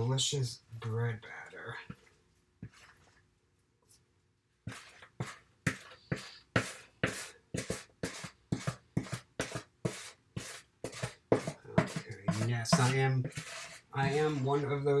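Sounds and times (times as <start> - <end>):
spatula scraping plastic container: 4.7 - 14.7.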